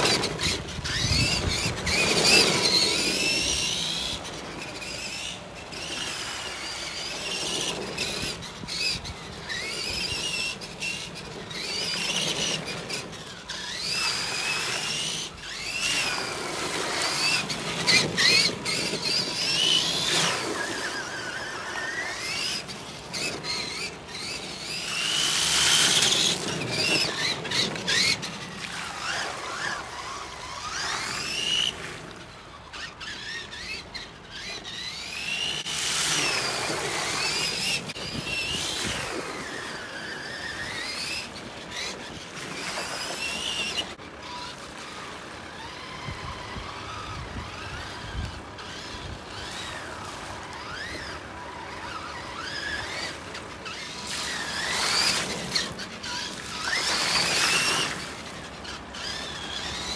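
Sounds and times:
rc truck motor whining: 0.0s - 59.9s.

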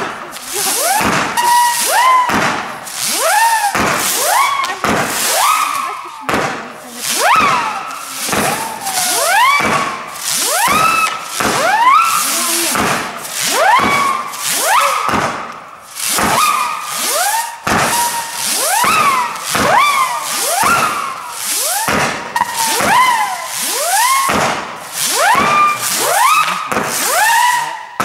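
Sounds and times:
rushing hiss: 0.0s - 27.8s
whistling firework shots: 0.0s - 28.0s.

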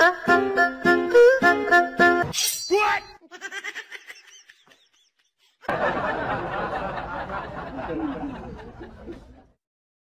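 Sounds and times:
person laughing and chattering: 3.2s - 5.7s.

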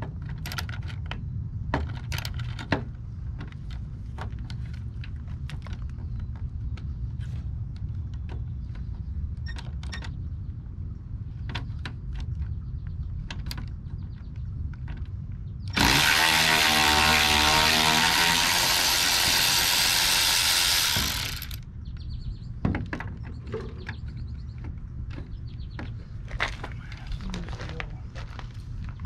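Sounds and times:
power tool spinning: 15.7s - 21.6s.

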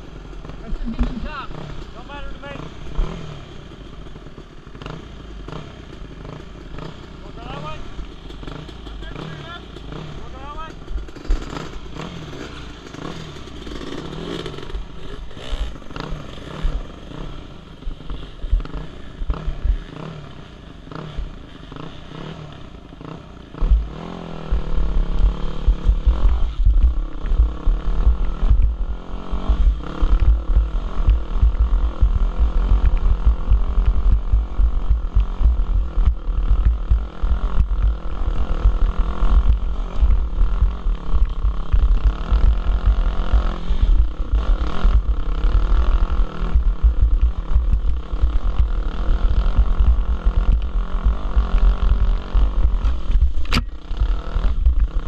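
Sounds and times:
dirt bike engine revving: 0.0s - 55.0s
heavy low buffeting: 23.7s - 55.0s.

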